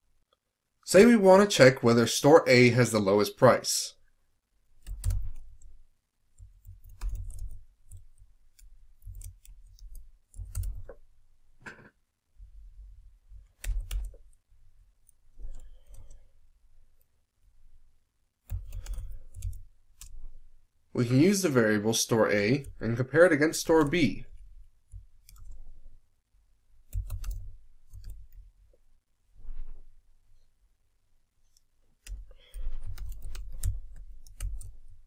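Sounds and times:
keyboard typing: 4.8s - 11.1s, 13.4s - 14.4s, 15.0s - 16.3s, 18.5s - 20.5s, 22.4s - 26.0s, 26.8s - 28.5s, 32.0s - 35.0s.

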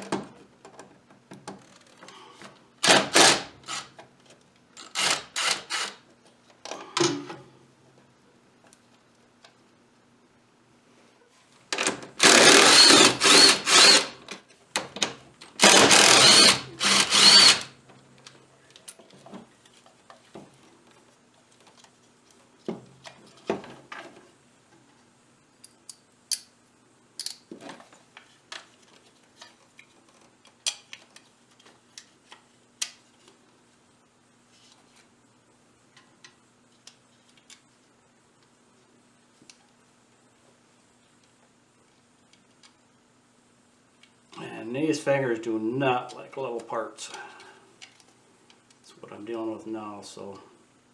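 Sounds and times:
power drill running: 2.8s - 3.9s, 4.8s - 6.0s, 12.2s - 14.2s, 15.6s - 17.7s
clicks of small parts handled: 27.2s - 27.5s.

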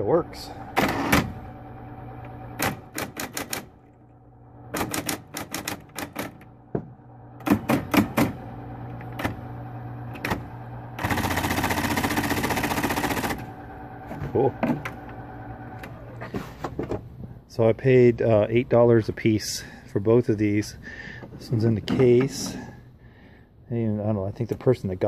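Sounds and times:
electric typewriter motor humming: 0.0s - 16.3s
typewriter space bar repeating: 2.6s - 3.7s, 4.7s - 6.4s.

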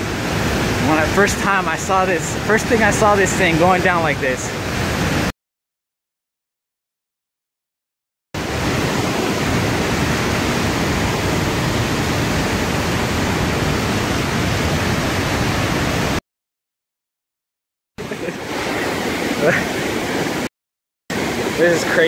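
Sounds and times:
waterfall rushing: 0.0s - 5.3s, 8.4s - 16.2s, 18.0s - 20.5s, 21.1s - 22.0s.

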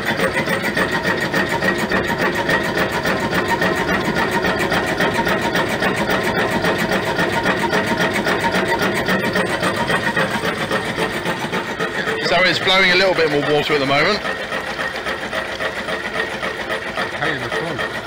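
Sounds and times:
engine mechanical clatter: 0.0s - 18.0s.

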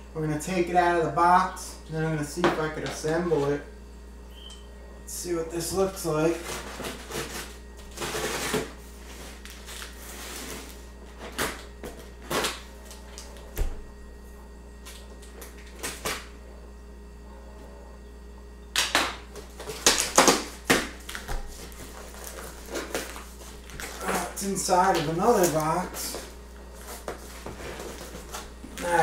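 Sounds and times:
tape tearing: 6.3s - 8.7s.

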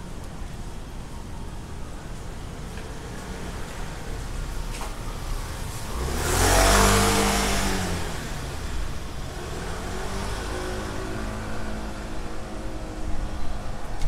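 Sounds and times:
vehicle driving past: 5.3s - 13.1s.

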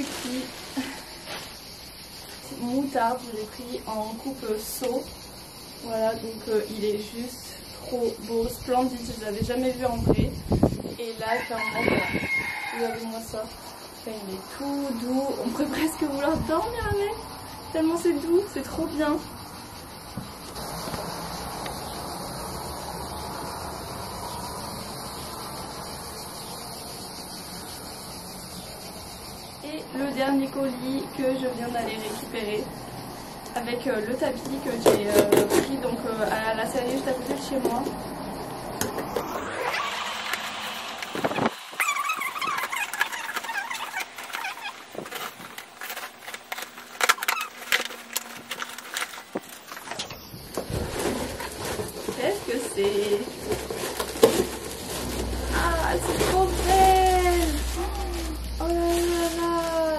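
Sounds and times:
cardboard rustling: 0.0s - 1.6s, 41.2s - 59.9s
steady hissing noise: 0.0s - 11.4s, 36.4s - 59.9s
wavering squeal: 38.9s - 48.6s.

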